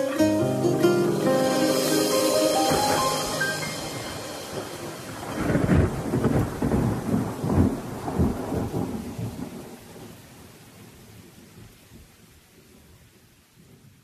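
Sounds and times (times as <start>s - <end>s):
thunder rumbling: 0.0s - 10.1s
steady rain: 0.0s - 14.0s.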